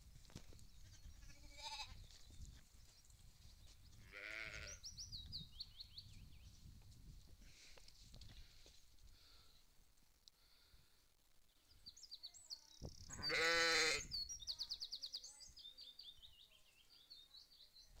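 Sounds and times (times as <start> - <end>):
sheep bleating: 1.2 - 2.0, 4.0 - 4.8, 13.1 - 14.1
faint high chirping: 11.6 - 18.0.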